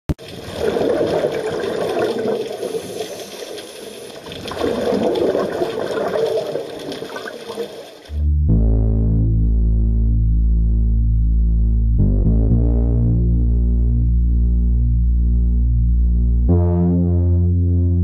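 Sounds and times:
underwater regulator bubbling: 0:00.2 - 0:08.3.

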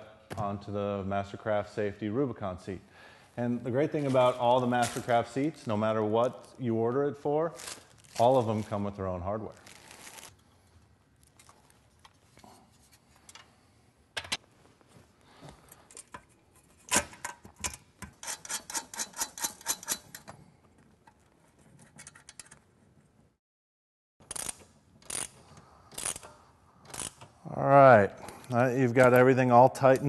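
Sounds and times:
bolts clinking on metal frame: 0:15.8 - 0:20.4, 0:21.8 - 0:22.7
ratchet clicking: 0:24.2 - 0:27.3.

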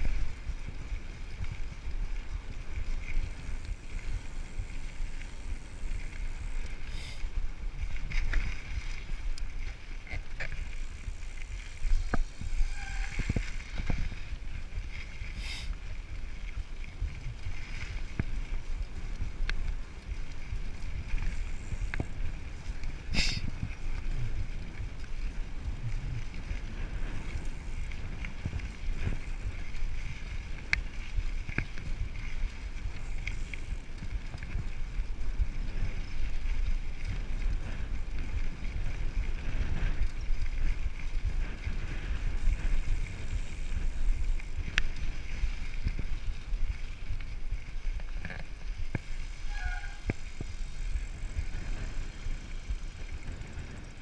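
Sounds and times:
bike clicks and rattles: 0:00.0 - 0:54.0
wind buffeting microphone: 0:00.0 - 0:54.0.

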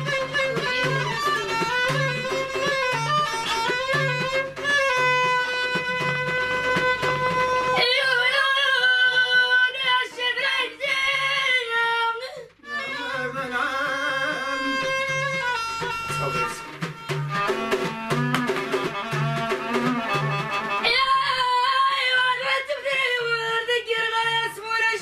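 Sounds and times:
frame drum beat: 0:00.0 - 0:08.0, 0:14.2 - 0:21.1
bowed violin: 0:00.0 - 0:10.2, 0:12.6 - 0:22.6
woman singing: 0:07.8 - 0:15.1, 0:20.8 - 0:25.0.

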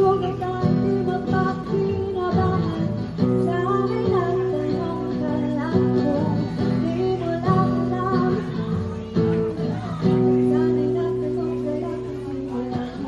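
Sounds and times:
strummed acoustic guitar: 0:00.0 - 0:13.0
woman singing: 0:00.0 - 0:13.0.

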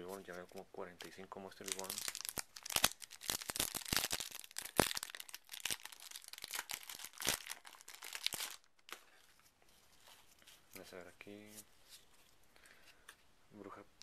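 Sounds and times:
foil pack crinkling: 0:01.6 - 0:08.9.

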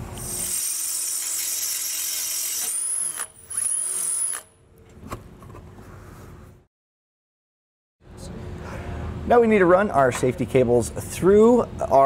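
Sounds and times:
power drill boring: 0:00.2 - 0:04.5.

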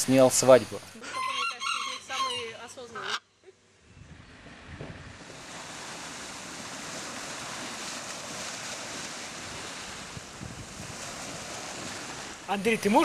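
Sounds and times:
ocean surf breaking on beach: 0:04.4 - 0:13.0.

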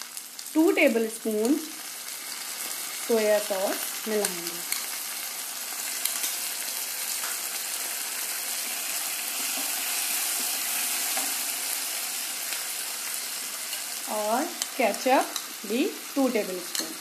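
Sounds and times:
vegetables sizzling in a frying pan: 0:00.0 - 0:17.0
utensils clicking on a pan: 0:03.8 - 0:05.0, 0:05.9 - 0:06.5, 0:08.6 - 0:11.6, 0:13.6 - 0:15.6, 0:16.3 - 0:17.0.

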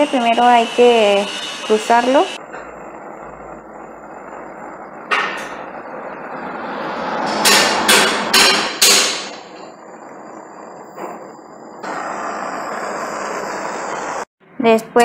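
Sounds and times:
steady hiss: 0:07.4 - 0:14.3.

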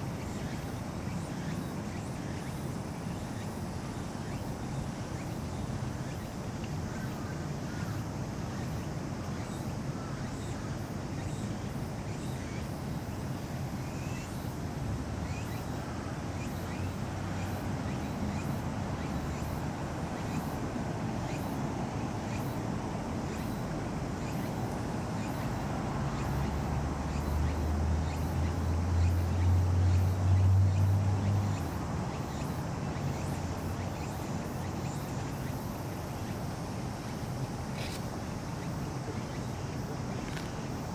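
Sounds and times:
outdoor ambient noise: 0:00.0 - 0:40.9.

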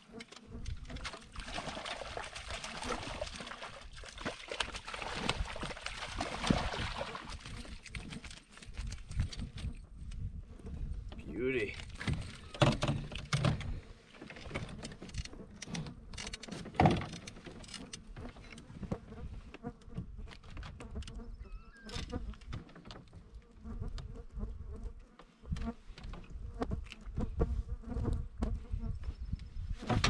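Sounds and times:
wind rumble on microphone: 0:05.2 - 0:13.8, 0:23.7 - 0:30.0
knocks and rattles of a net: 0:11.7 - 0:18.5.

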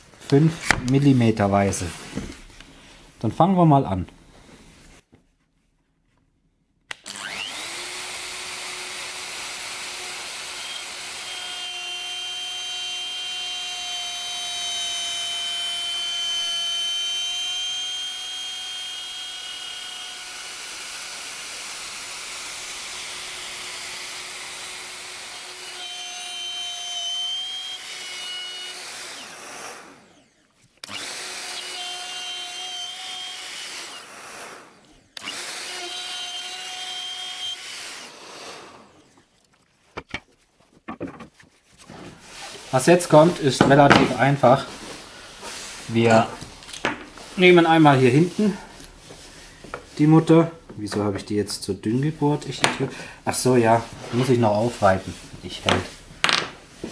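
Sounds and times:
router whining: 0:06.9 - 0:56.9.

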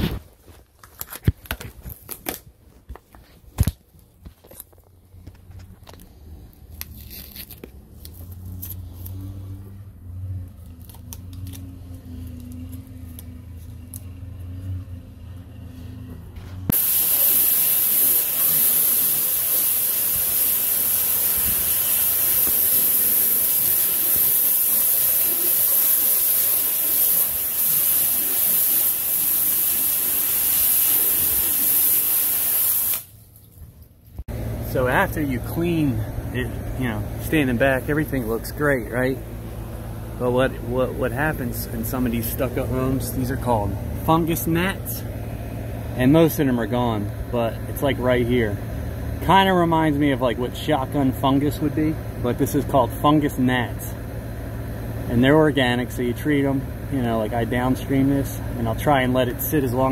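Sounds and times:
pressure washer spraying: 0:16.7 - 0:33.2
low steady hum: 0:33.1 - 0:59.9.

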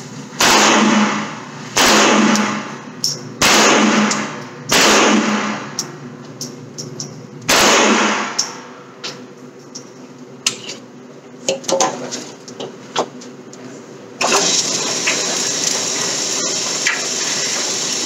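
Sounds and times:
gunshots with echo: 0:00.4 - 0:02.8, 0:03.4 - 0:05.8, 0:07.5 - 0:08.4.

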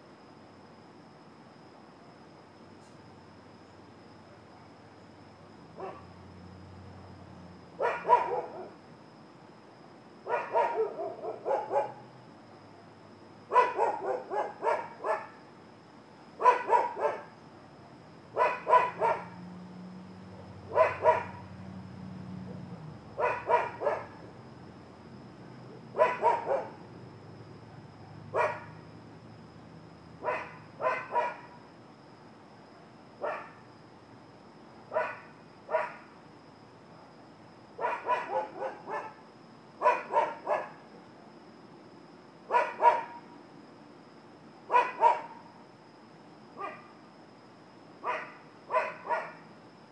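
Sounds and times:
dog barking: 0:05.8 - 0:06.1, 0:07.8 - 0:08.8, 0:10.3 - 0:12.0, 0:13.5 - 0:15.4, 0:16.4 - 0:17.3, 0:18.3 - 0:19.4, 0:20.7 - 0:21.4, 0:23.2 - 0:24.2, 0:25.9 - 0:26.8, 0:28.3 - 0:28.8, 0:30.2 - 0:31.6, 0:33.2 - 0:33.6, 0:34.9 - 0:36.1, 0:37.8 - 0:39.2, 0:39.8 - 0:40.8, 0:42.5 - 0:43.2, 0:44.7 - 0:45.4, 0:46.6 - 0:46.9, 0:48.0 - 0:49.4.

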